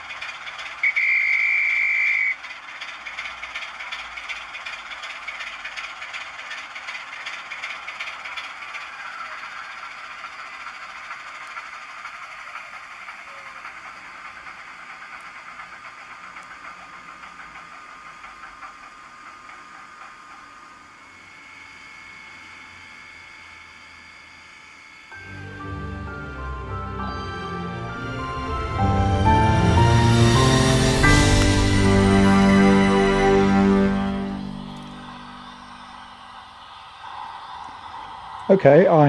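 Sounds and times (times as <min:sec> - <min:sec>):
model locomotive hiss with patter: 0:00.0 - 0:25.2, 0:29.9 - 0:39.0
steady high tone: 0:25.0 - 0:39.0.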